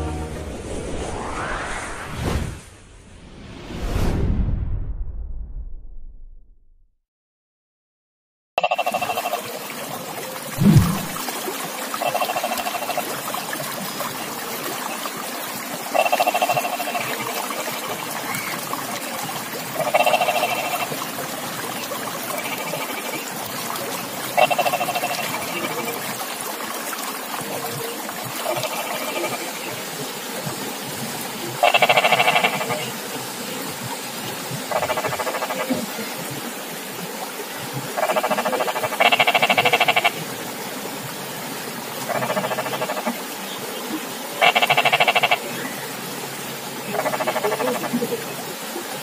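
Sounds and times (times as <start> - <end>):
frogs croaking: 8.6 - 11.2, 11.9 - 13.6, 15.8 - 19.1, 19.7 - 26.3, 28.3 - 29.8, 31.6 - 33.0, 34.7 - 36.0, 37.9 - 40.3, 42.0 - 43.4, 44.4 - 45.8, 46.8 - 48.2.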